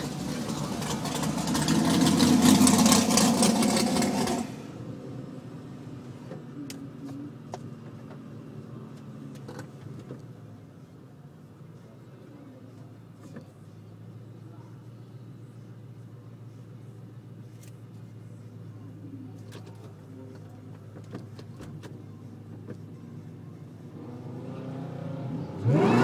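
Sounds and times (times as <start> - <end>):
loud engine rushing: 0.0 - 4.9, 24.0 - 26.0
car engine idling: 0.0 - 26.0.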